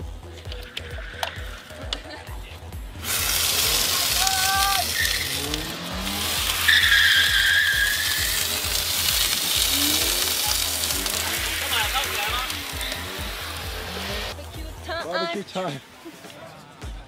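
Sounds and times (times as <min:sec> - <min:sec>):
water sizzling on hot metal: 0:02.9 - 0:14.5
steady squeal: 0:03.2 - 0:10.5.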